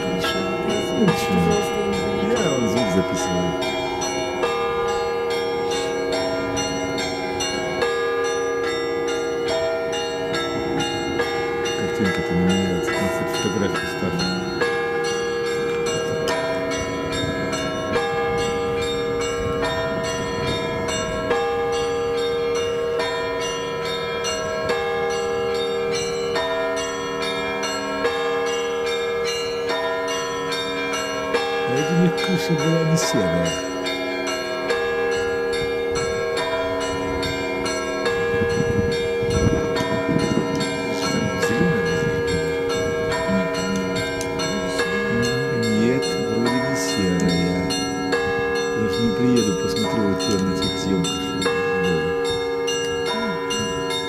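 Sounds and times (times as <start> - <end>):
faint voices: 0.0 - 3.7, 11.8 - 14.4, 40.8 - 42.6, 43.2 - 47.8, 48.8 - 52.3, 53.0 - 54.0
church bells pealing: 0.0 - 54.0.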